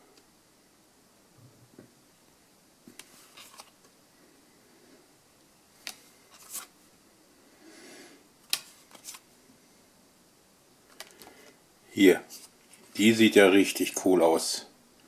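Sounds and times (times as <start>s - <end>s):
cards sliding against cards: 2.9s - 3.8s, 5.8s - 6.8s, 8.4s - 9.3s, 12.3s - 13.0s.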